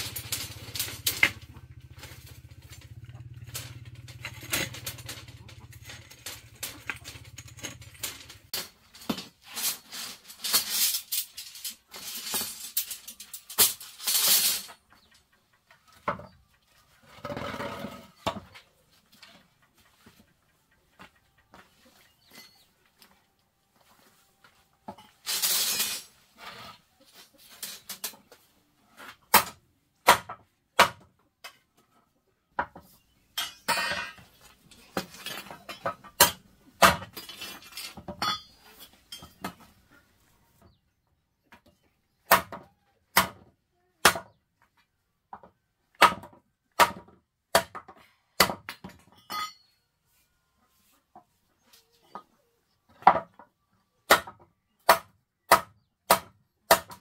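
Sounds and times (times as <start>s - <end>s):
hard objects clinking: 0.0s - 14.8s.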